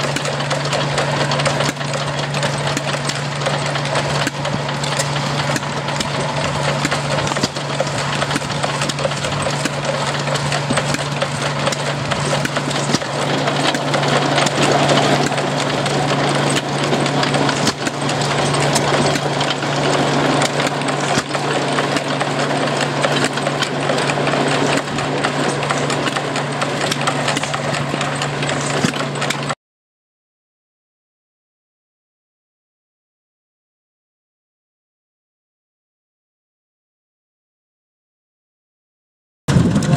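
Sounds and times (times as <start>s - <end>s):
stationary gas engine hum: 0.0s - 29.6s
wooden machine clattering and knocking: 0.0s - 29.6s.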